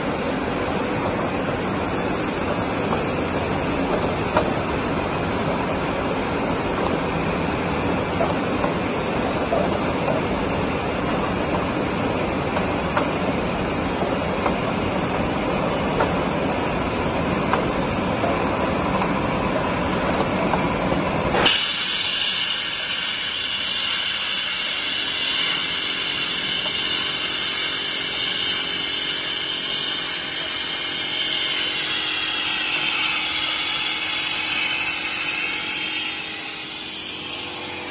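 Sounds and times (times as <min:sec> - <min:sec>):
machine whirring and hissing: 0:00.0 - 0:37.9
high machine whine: 0:21.0 - 0:37.9.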